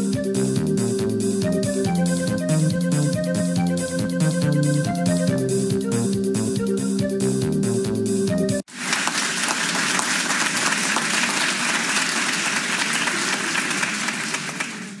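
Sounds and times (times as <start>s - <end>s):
music: 0.0s - 8.7s
crowd applause: 8.7s - 15.0s.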